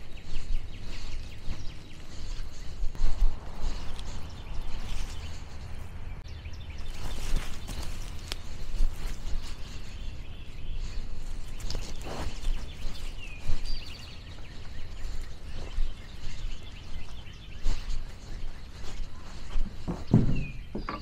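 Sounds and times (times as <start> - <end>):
steady low rumble: 0.0 - 11.6
bird call and trill: 0.0 - 21.0
rustles and knocks: 19.5 - 21.0.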